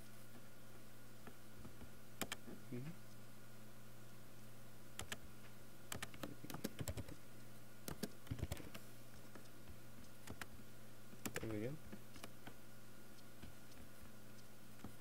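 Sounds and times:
faint electrical hum: 0.0s - 15.0s
keyboard typing: 2.2s - 2.5s, 5.0s - 5.2s, 5.9s - 7.2s, 7.8s - 10.5s, 11.2s - 12.6s.

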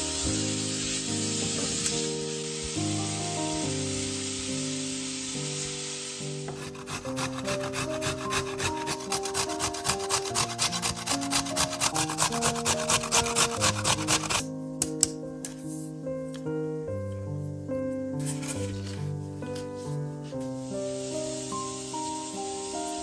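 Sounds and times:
onion sizzling in a frying pan: 0.0s - 14.4s, 20.4s - 23.0s
background music: 0.0s - 23.0s
wooden spatula stirring: 6.5s - 14.4s
carrot grated on metal grater: 6.6s - 14.4s.

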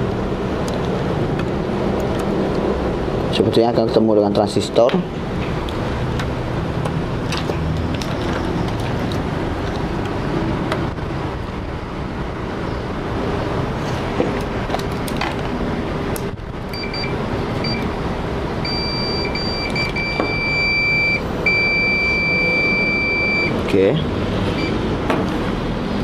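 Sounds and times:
multimeter continuity beeps: 16.7s - 18.0s, 18.6s - 23.6s, 24.6s - 24.8s.

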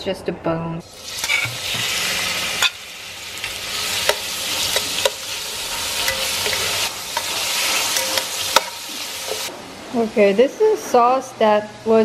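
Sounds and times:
meat sizzling in oil: 0.8s - 9.5s.

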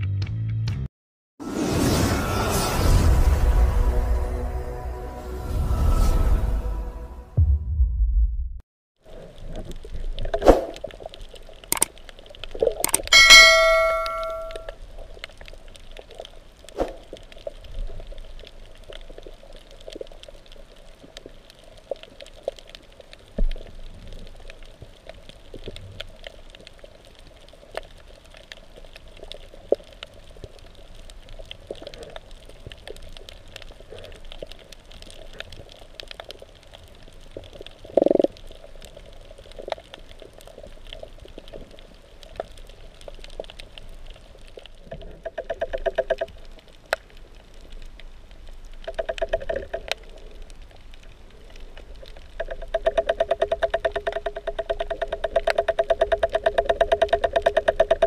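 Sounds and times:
small clicks and crackles: 9.0s - 13.2s, 14.5s - 58.0s
metallic clang: 13.1s - 14.7s
dull underwater hum: 43.6s - 58.0s.

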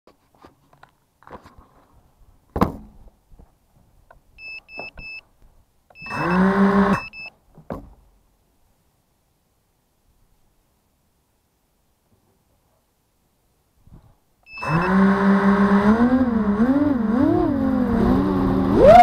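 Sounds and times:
sharp thump: 2.5s - 3.0s
short high electronic beeps: 6.0s - 7.3s, 14.5s - 15.0s
drone motors spinning up: 6.1s - 7.1s, 14.5s - 19.0s.

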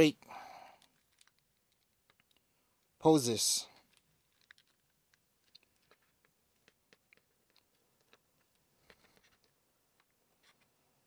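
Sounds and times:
plastic action figure joints clicking: 0.8s - 2.5s, 3.7s - 10.6s.

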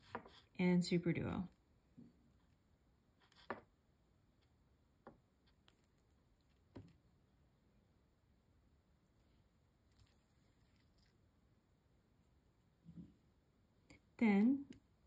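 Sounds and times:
faint clicks of beads and needle: 2.2s - 7.0s, 9.1s - 11.3s.

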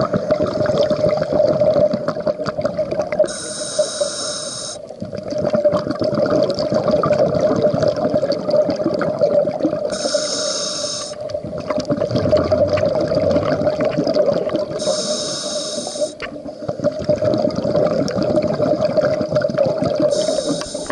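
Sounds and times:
bubbling exhaled air: 0.0s - 20.9s
hissing regulator inhale: 3.2s - 4.9s, 9.9s - 11.2s, 14.8s - 16.2s, 20.1s - 20.9s
steady hum: 3.3s - 5.0s, 9.9s - 11.6s, 14.7s - 16.8s, 20.1s - 20.9s.

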